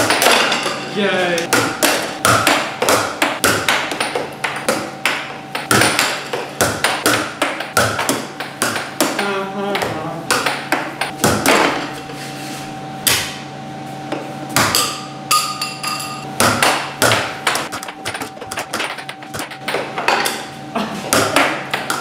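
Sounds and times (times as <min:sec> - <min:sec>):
air hockey puck clacking: 0:01.5 - 0:11.8, 0:16.4 - 0:20.5, 0:21.1 - 0:22.0.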